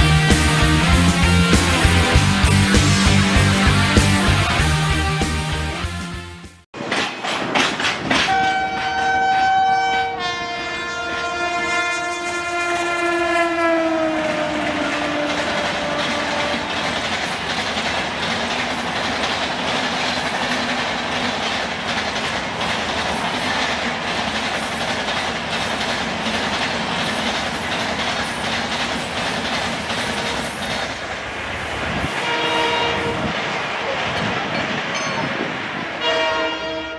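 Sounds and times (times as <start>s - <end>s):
train rushing past: 0.0s - 6.2s, 6.8s - 36.9s
wheels clattering over rail joints: 6.8s - 10.2s, 14.0s - 32.9s.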